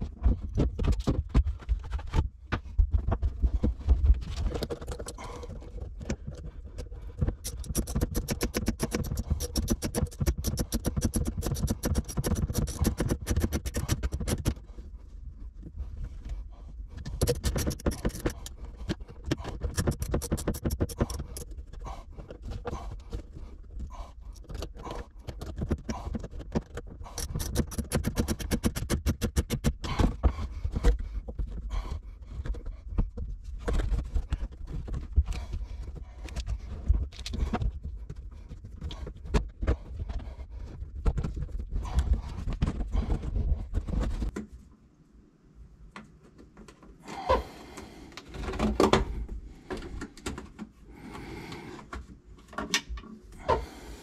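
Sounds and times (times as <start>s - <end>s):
plastic hose scraping and rubbing: 3.0s - 44.5s
quick clicks: 7.4s - 14.6s.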